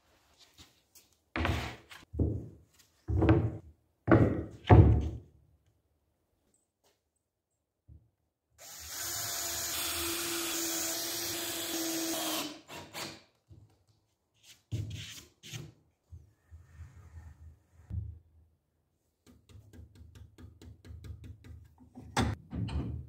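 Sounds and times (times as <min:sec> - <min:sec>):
cordless drill boring into wood: 0:08.6 - 0:13.0.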